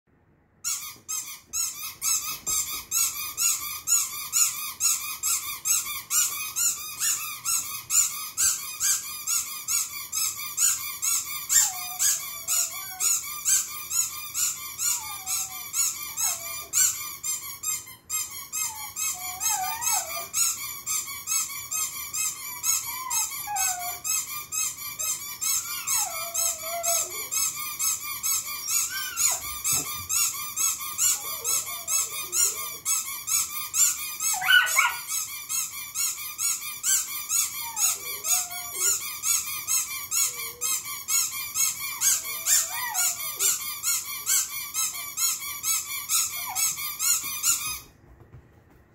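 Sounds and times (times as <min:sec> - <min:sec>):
rubber squeaky toys squeaking: 0:00.6 - 0:48.0
dog howling: 0:11.6 - 0:13.2, 0:14.9 - 0:16.8, 0:18.6 - 0:20.4, 0:22.5 - 0:24.1, 0:25.5 - 0:27.5, 0:28.6 - 0:29.9, 0:31.0 - 0:32.9, 0:34.3 - 0:35.1, 0:37.6 - 0:39.0, 0:41.9 - 0:43.6.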